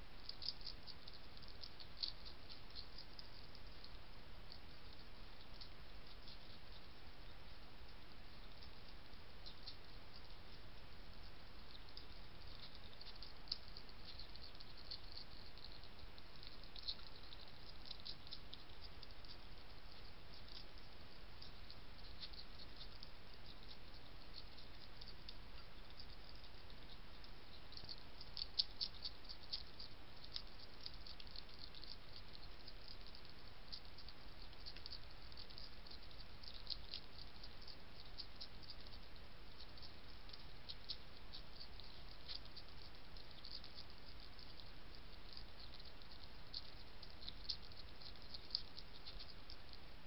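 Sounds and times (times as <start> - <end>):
steady hiss: 0.0 - 50.0
hedgehog crunching dry biscuits: 0.1 - 7.0, 7.8 - 50.0.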